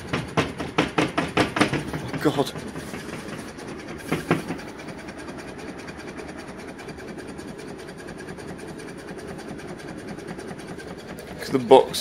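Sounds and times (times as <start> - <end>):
panel rattling against wall: 0.0 - 5.2.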